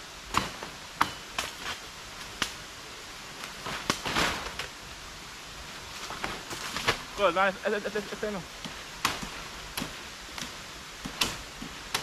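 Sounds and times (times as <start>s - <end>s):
vegetation rustling: 0.0s - 12.0s
blade chopping wood and brush: 0.3s - 2.6s, 3.4s - 4.7s, 6.0s - 7.1s, 8.6s - 12.0s.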